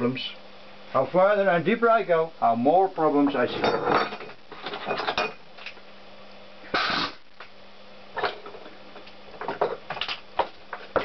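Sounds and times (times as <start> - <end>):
faint steady hum: 0.0 - 11.0
metal tools clinking: 3.5 - 5.4
pneumatic tool burst: 6.7 - 7.2.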